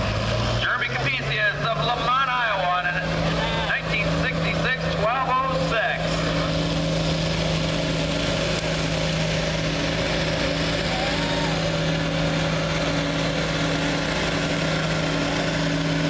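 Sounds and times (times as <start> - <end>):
diesel tractor engine droning: 0.0 - 16.0.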